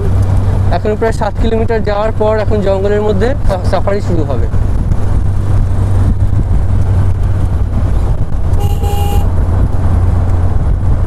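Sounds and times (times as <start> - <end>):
engine rumble: 0.0 - 11.0
wind buffeting: 3.4 - 11.0
car horn toot: 8.5 - 9.4.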